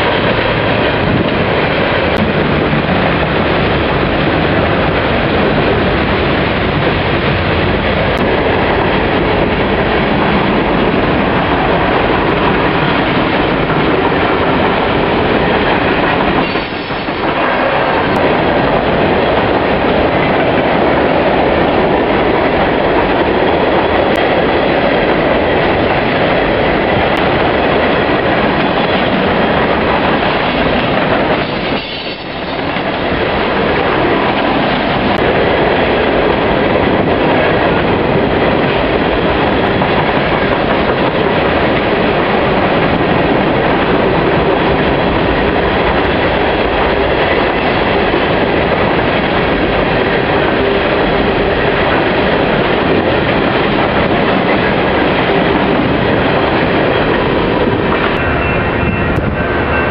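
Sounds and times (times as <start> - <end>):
train wheels rolling on rails: 0.0 - 59.9.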